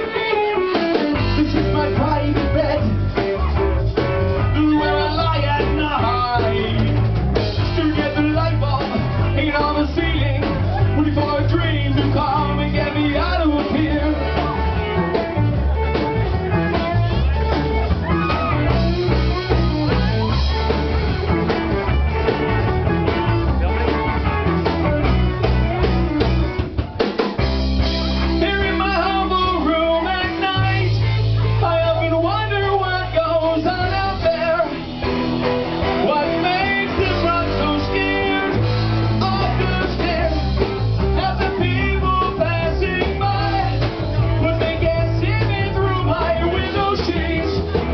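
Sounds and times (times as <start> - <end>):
drum kit: 0.0 - 47.9
electric guitars: 0.0 - 47.9
man singing into microphone: 1.1 - 3.5, 4.3 - 14.8, 28.3 - 34.8, 35.9 - 47.9.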